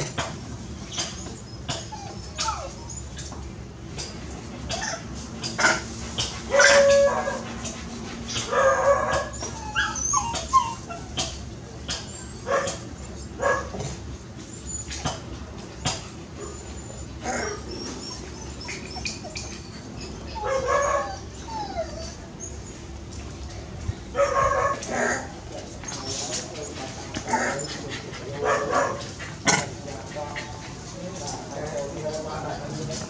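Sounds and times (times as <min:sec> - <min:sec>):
dog crying: 0:01.2 - 0:03.2, 0:06.5 - 0:07.4, 0:08.6 - 0:11.2, 0:16.4 - 0:22.7
dogs barking: 0:06.5 - 0:07.5, 0:08.3 - 0:10.5, 0:12.4 - 0:13.8, 0:20.3 - 0:21.3, 0:24.1 - 0:25.3, 0:27.2 - 0:30.6.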